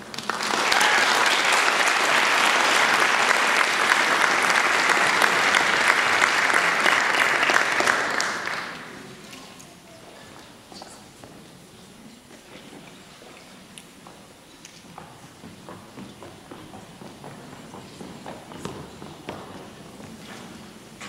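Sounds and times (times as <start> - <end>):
audience clapping: 0.0 - 9.4.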